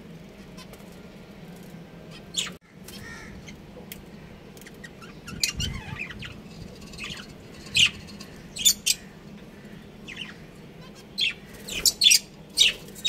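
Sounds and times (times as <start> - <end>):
budgerigars chirping and squawking: 4.6 - 13.0.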